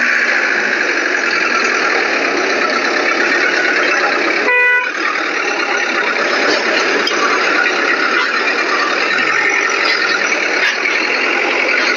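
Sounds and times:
dense background noise: 0.0 - 11.9
vehicle horn toot: 4.4 - 5.0.

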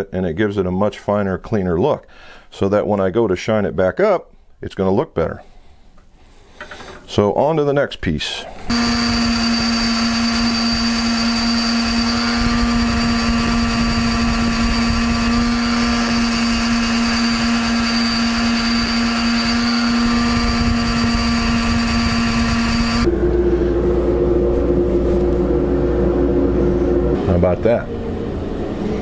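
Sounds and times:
bench buffer motor humming: 8.6 - 24.2.

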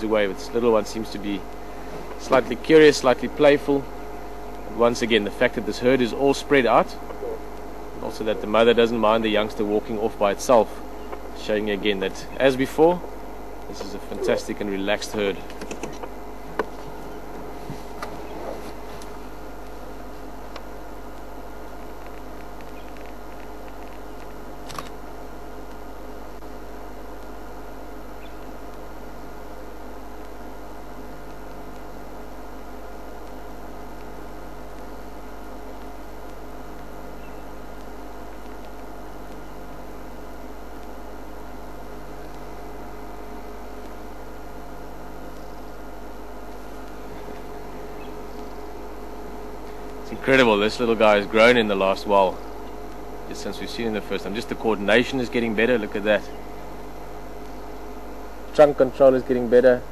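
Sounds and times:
steady hum and hiss: 0.0 - 59.9
sharp click: 23.8 - 25.0.

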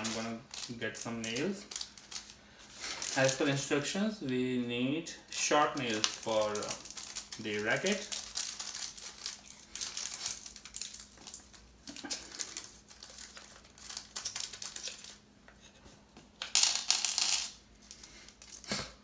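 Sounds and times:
plastic packet crinkling: 0.0 - 3.6, 5.3 - 15.3.

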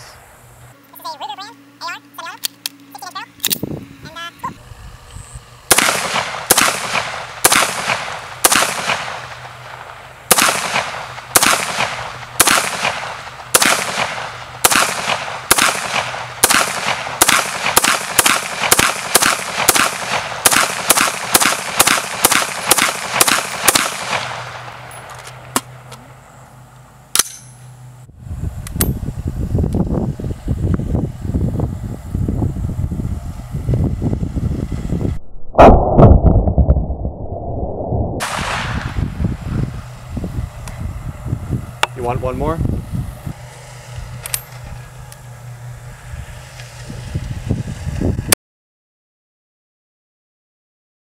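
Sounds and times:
rifle shots with echo: 5.7 - 24.8.

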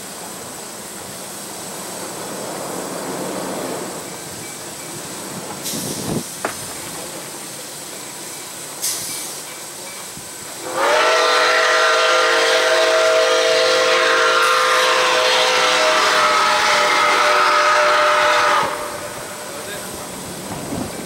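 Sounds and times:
steam locomotive chime whistle: 9.8 - 19.4.

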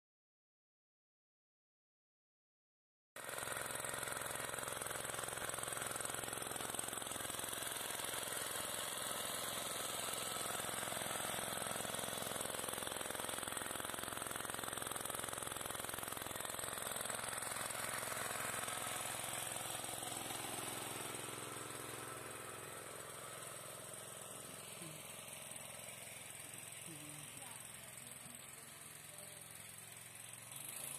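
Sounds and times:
vacuum pump whirring: 3.2 - 30.9.

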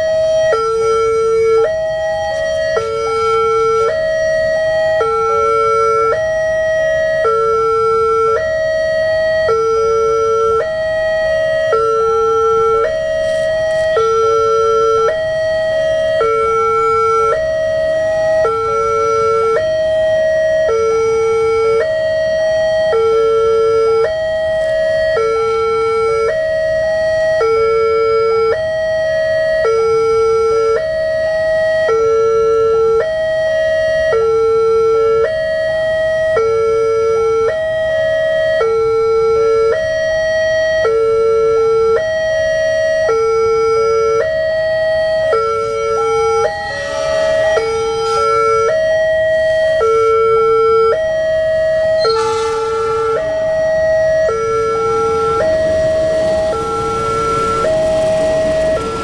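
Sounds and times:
two-tone crossing alarm: 0.0 - 59.0.

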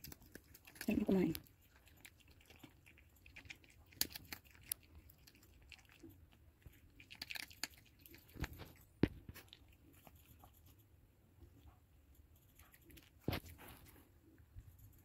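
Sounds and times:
dog crunching dry kibble: 0.0 - 10.6.

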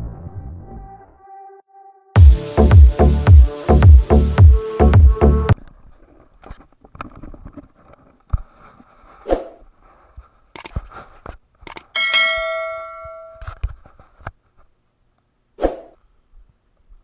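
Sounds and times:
mouse clicks: 10.6 - 10.8, 11.7 - 11.9
bright bell ding: 12.0 - 13.4.

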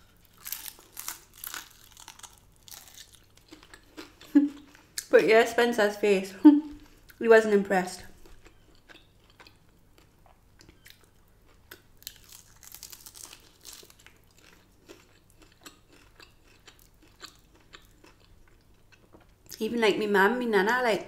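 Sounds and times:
person crunching fried food: 0.0 - 5.0, 8.2 - 19.6.

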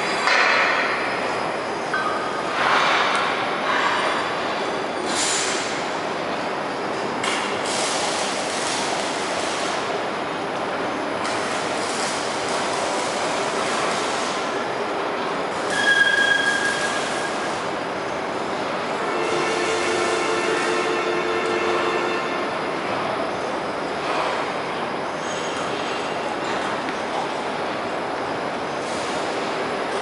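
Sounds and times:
carousel grinding running noise: 1.0 - 30.0
high squeal: 15.7 - 17.8.

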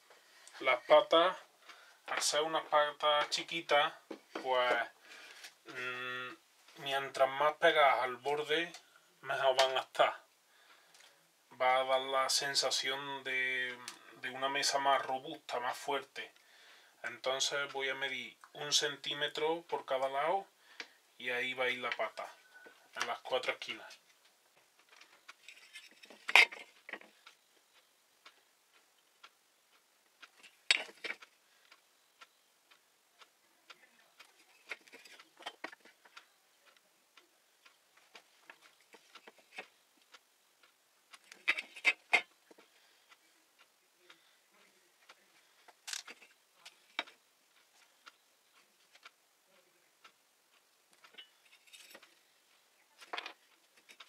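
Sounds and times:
wooden pieces clicking on board: 24.8 - 27.2, 30.2 - 31.3, 33.7 - 36.0, 38.1 - 39.7, 41.1 - 42.7, 45.6 - 47.2, 53.0 - 54.0.

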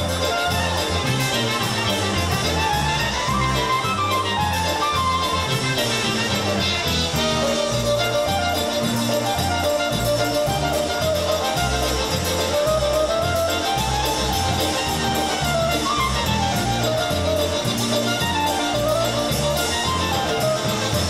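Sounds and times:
polka band playing: 0.0 - 21.0.

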